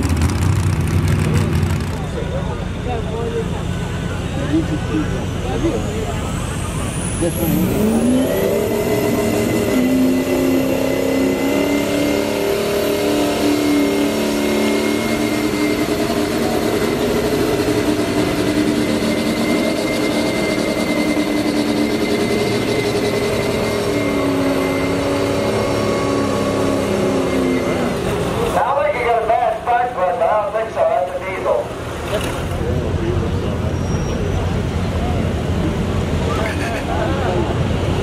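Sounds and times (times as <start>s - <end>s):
diesel truck engine at high revs: 0.0s - 38.0s
steady high whistle: 17.8s - 28.0s.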